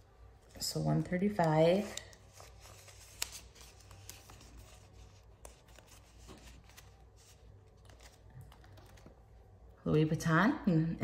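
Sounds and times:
low steady hum: 0.0s - 11.0s
banknotes rustling and clicking: 1.2s - 9.6s.

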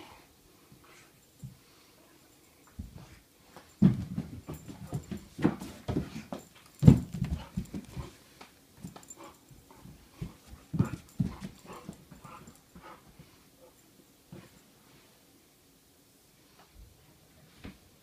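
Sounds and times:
puppy paw steps and thuds on carpet: 3.8s - 8.1s.

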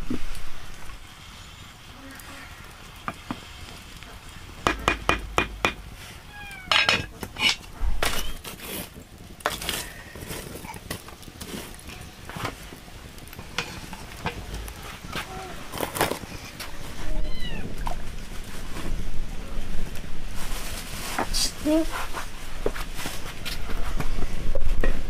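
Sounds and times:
pot lid and pot clattering: 6.7s - 8.4s.

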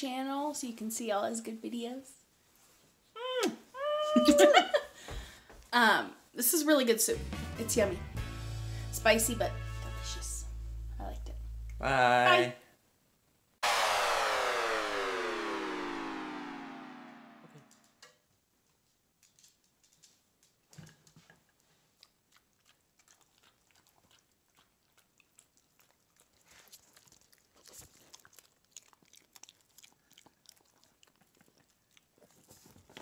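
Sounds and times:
dog chewing and crunching: 20.7s - 33.0s.

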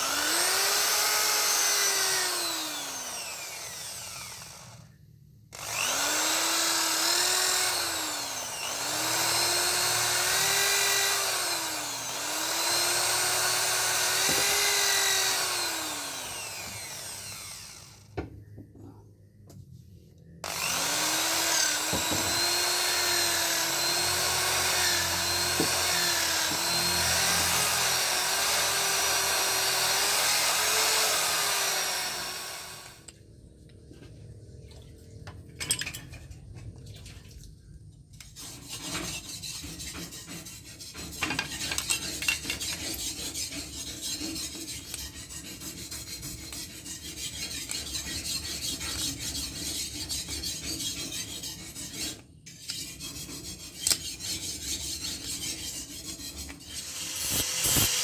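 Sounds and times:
electric drill boring into steel: 0.0s - 4.9s, 5.5s - 18.2s, 20.4s - 33.1s, 56.7s - 58.0s
file rasping metal: 5.6s - 18.0s, 20.4s - 32.9s, 38.2s - 58.0s.

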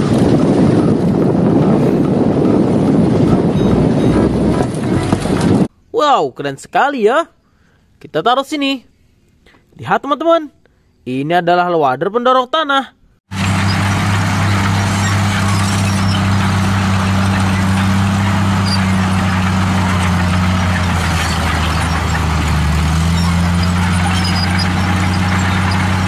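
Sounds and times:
bulldozer diesel engine under load: 0.0s - 5.7s, 13.3s - 26.0s.

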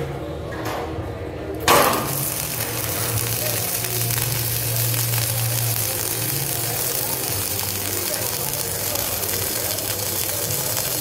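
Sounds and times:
welding arc sizzling and crackling: 1.6s - 11.0s.

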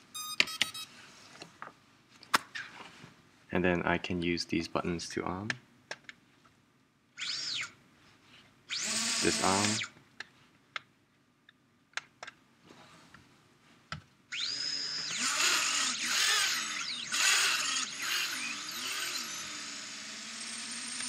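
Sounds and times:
drone motors whining: 8.7s - 9.9s, 14.3s - 21.0s.

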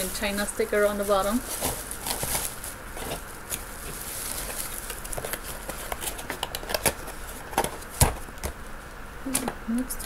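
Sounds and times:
cardboard rustling and clicks: 1.6s - 8.6s.

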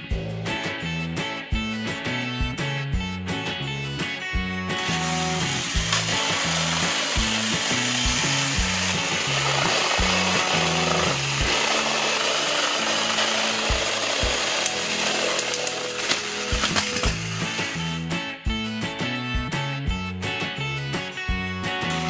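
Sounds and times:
background music with steady beat: 0.0s - 22.0s
toy train motors grinding whir: 4.7s - 18.1s.

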